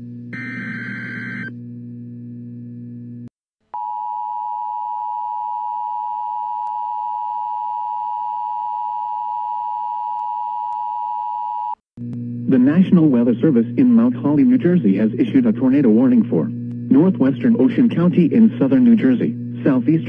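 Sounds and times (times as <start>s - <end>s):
low hum: 0.0s - 3.3s, 12.0s - 20.0s.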